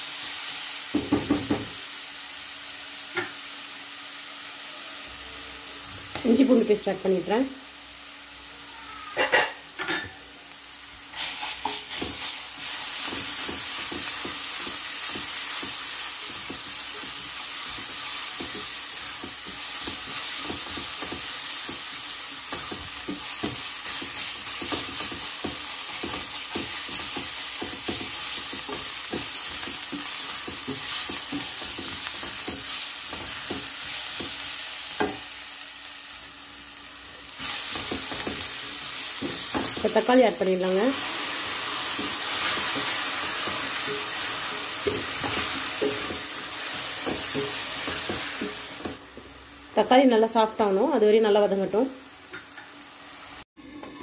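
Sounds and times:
onions sizzling in oil: 0.0 - 54.0
spatula scraping pan: 11.1 - 21.8, 40.9 - 48.8.

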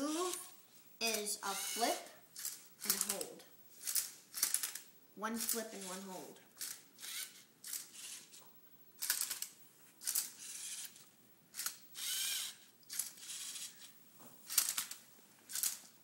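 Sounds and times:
robot motors whirring: 1.1 - 3.2, 6.6 - 8.4, 10.0 - 11.0, 11.6 - 13.9.

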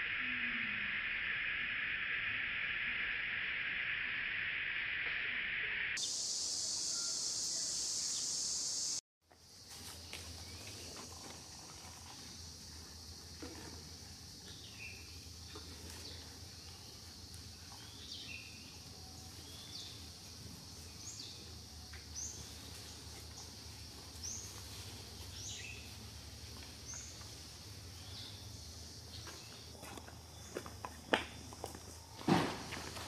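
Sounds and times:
steady high hiss: 0.0 - 11.6.

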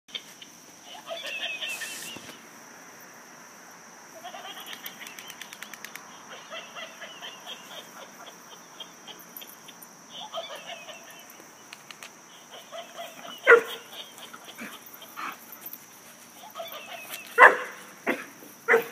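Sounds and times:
toy monkey laughing: 0.8 - 2.4, 4.2 - 5.5, 6.1 - 11.5, 12.3 - 15.2.

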